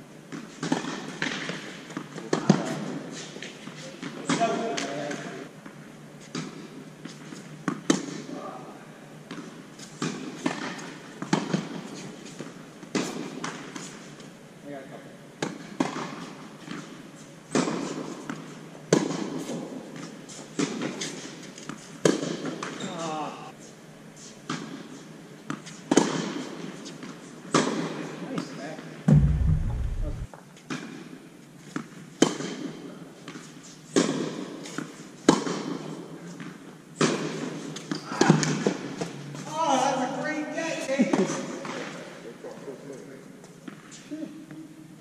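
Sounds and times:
racket striking tennis ball: 29.1s - 30.3s.

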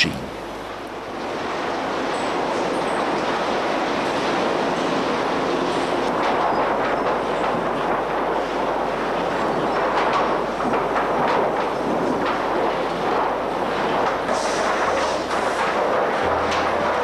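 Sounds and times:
boards clattering on conveyors: 6.0s - 17.0s.

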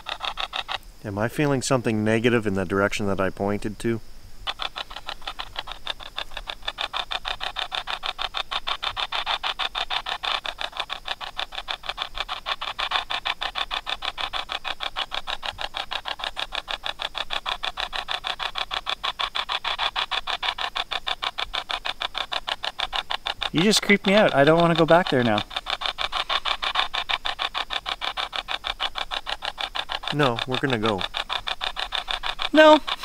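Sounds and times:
rapid chopped radio static: 29.8s - 33.0s.

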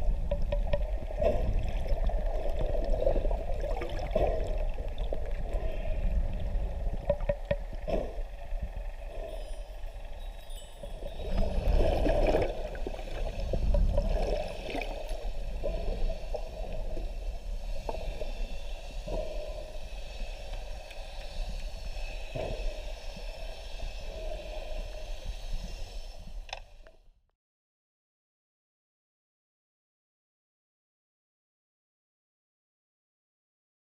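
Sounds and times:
muffled underwater rumble and sloshing: 0.0s - 27.0s.

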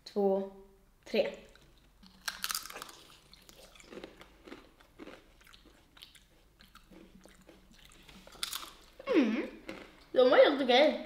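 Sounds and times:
chewing crunchy food: 1.4s - 10.2s.

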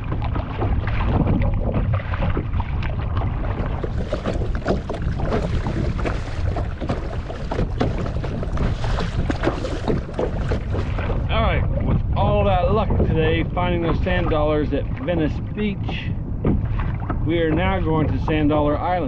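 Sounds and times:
paddle splashing: 0.0s - 19.0s
water slapping against hull: 0.0s - 19.0s
wind buffeting microphone: 0.0s - 19.0s.

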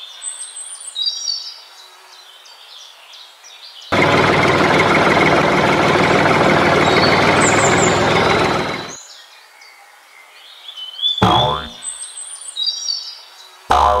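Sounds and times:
tractor engine idling: 3.9s - 8.9s.

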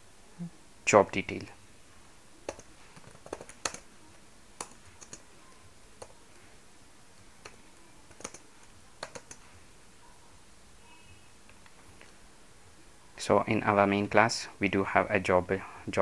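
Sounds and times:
computer keyboard keystrokes: 2.5s - 3.8s, 4.6s - 5.2s, 7.4s - 8.4s, 9.0s - 9.4s.

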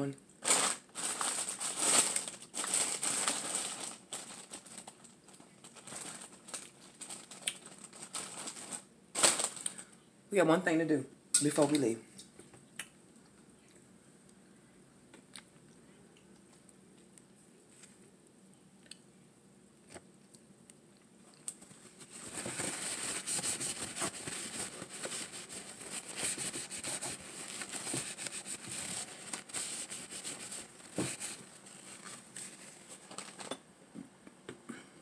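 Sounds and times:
paper crinkling: 0.4s - 9.9s, 21.4s - 33.6s.

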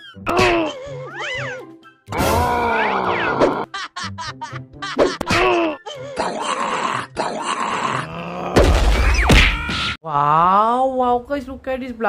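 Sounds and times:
cartoon voices grunting: 0.3s - 1.6s, 2.2s - 3.6s, 5.3s - 8.7s
comic sound effects: 2.1s - 3.7s.

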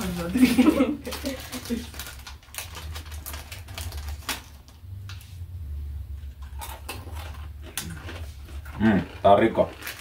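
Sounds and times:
peanuts being chewed: 6.4s - 10.0s.

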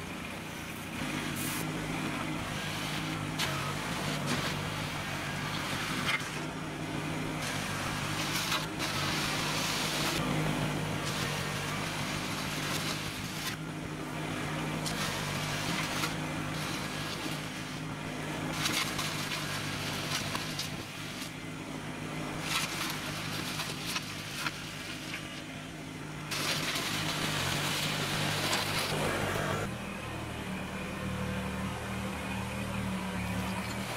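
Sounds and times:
tractor diesel engine running: 0.0s - 33.9s
gravel crunching and scraping: 0.7s - 29.7s.

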